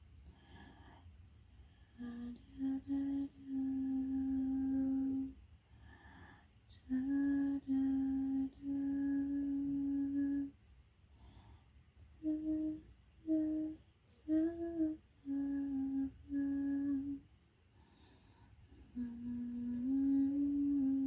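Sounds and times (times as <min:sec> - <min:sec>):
person humming a slow tune: 0:01.2 - 0:05.4, 0:06.7 - 0:10.6, 0:12.1 - 0:17.3, 0:18.7 - 0:21.0.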